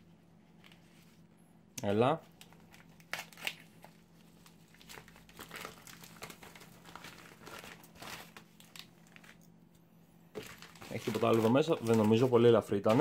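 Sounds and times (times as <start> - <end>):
plastic mailer crinkling: 2.3 - 9.5, 10.3 - 13.0.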